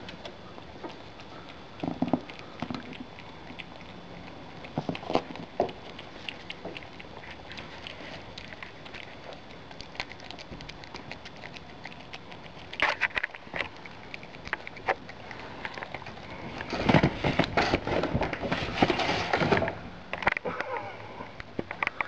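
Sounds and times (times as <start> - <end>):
wet chewing clicks: 0.0 - 18.4, 21.4 - 22.0
animal scrabbling and rustling: 12.6 - 19.8.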